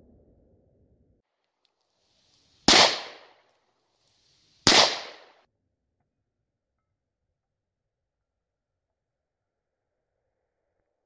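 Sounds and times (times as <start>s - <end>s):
pistol shots with echo: 2.7s - 3.4s, 4.6s - 5.4s.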